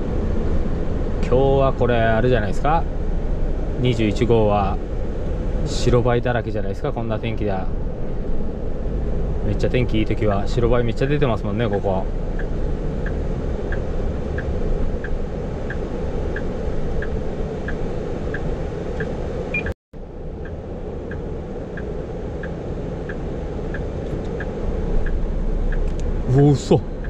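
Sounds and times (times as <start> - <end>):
truck engine and road rumble: 0.0 - 27.0
turn signal ticking: 11.3 - 19.8, 20.4 - 27.0.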